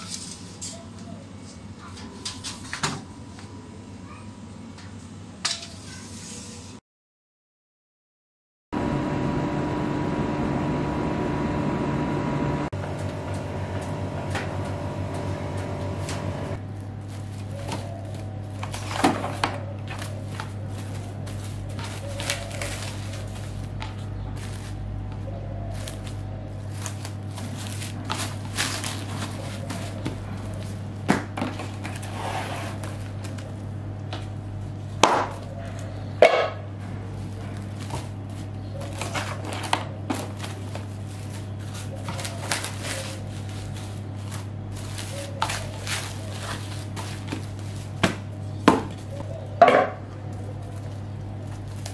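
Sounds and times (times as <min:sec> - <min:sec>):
low hum: 0:08.8 - 0:19.0.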